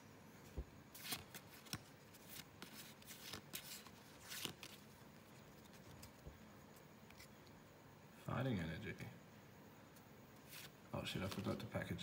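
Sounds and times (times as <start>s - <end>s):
trading cards being flipped: 0.9s - 7.5s, 10.4s - 11.6s.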